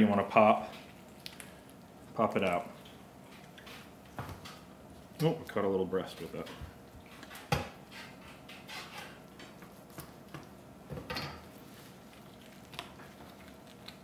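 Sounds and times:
rustle of handling: 11.5s - 14.0s.

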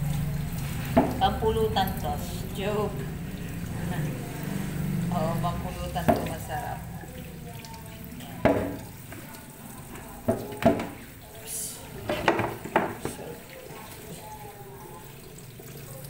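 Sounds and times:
tap water running into colander: 0.0s - 16.0s
colander knocking against sink: 0.9s - 1.3s, 6.0s - 6.5s, 8.4s - 9.2s, 10.0s - 11.0s, 12.0s - 13.2s.

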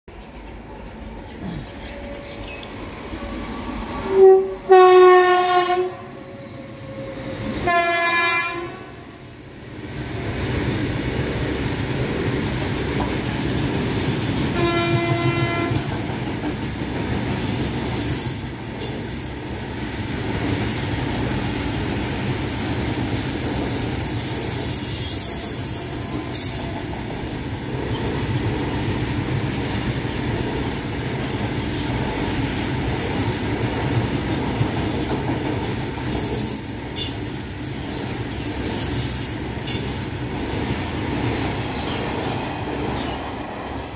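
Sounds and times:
train rumbling past: 0.1s - 43.9s
train horn: 4.0s - 9.2s, 14.5s - 15.9s, 25.0s - 26.8s.

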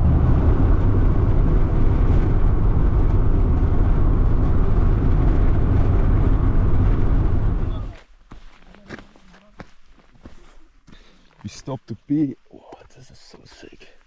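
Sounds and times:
car engine: 0.0s - 8.0s
tyre and road noise: 0.0s - 11.8s.

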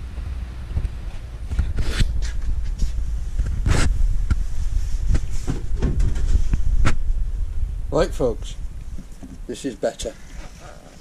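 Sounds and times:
steady low rumble: 0.0s - 9.8s
handling scrapes and rustles: 10.0s - 11.0s.

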